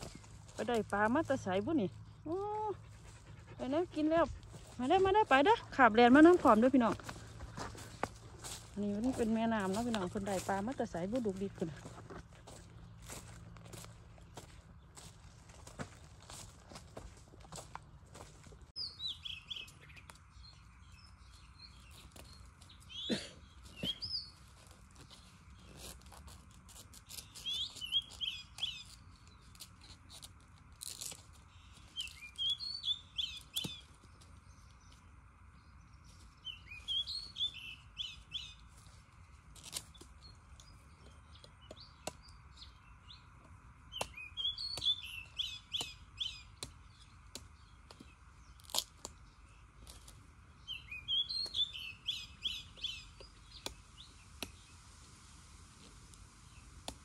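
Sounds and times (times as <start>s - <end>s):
small birds chirping: 0.0s - 57.0s
knife cutting bamboo shoots: 48.6s - 49.2s.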